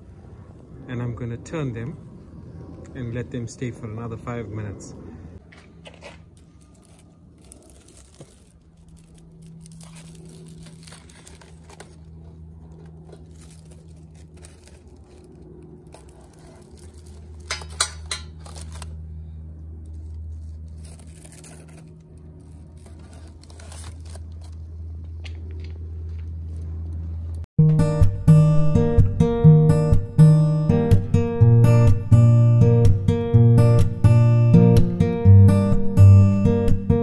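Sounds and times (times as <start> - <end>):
low steady hum: 0.0 - 36.4
aluminium foil crinkling: 6.0 - 19.0, 19.8 - 24.8.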